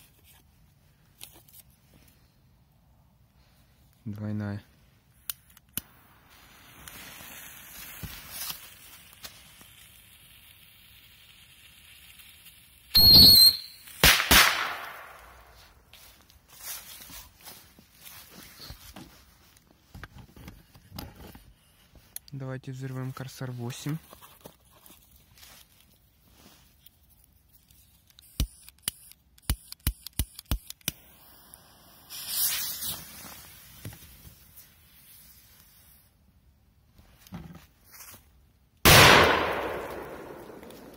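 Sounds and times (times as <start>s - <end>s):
firecracker fuse hissing: 5.1s - 15.9s, 27.6s - 36.2s, 39.2s - 40.9s
firecracker whistle: 12.9s - 14.5s
firecracker bangs: 13.0s - 15.6s, 38.9s - 40.9s.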